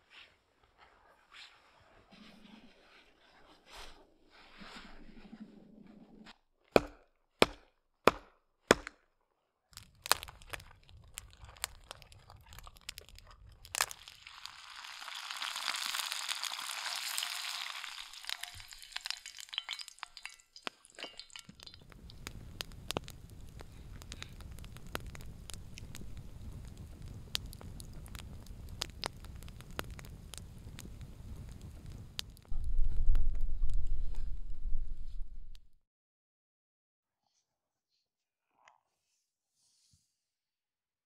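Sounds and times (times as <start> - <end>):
sharp knocks: 6.8 - 9.0
crackling and sizzling hiss: 9.8 - 35.6
low steady rumble: 21.8 - 35.7.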